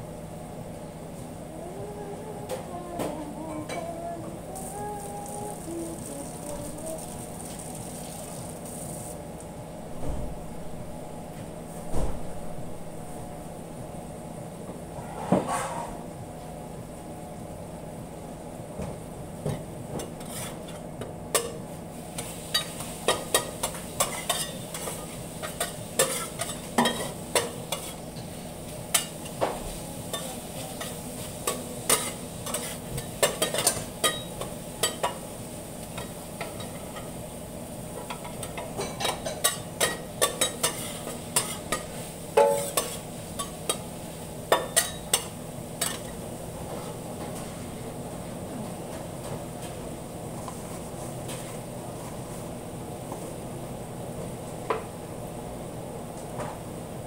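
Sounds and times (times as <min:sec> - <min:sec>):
steady low hum: 0:00.0 - 0:57.0
meat and onions sizzling on a griddle: 0:07.2 - 0:09.2
metal tools scraping a griddle: 0:20.2 - 0:20.8.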